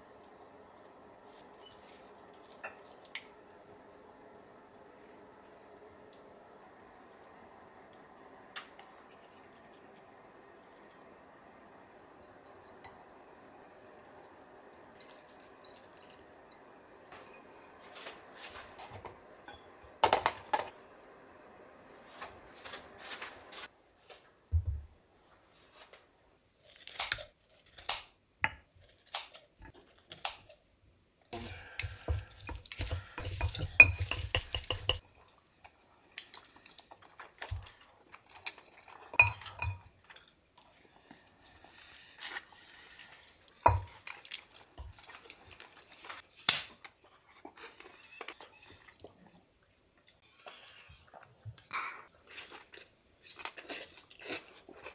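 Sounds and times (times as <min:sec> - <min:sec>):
chopsticks against bowl: 0:31.4 - 0:35.0.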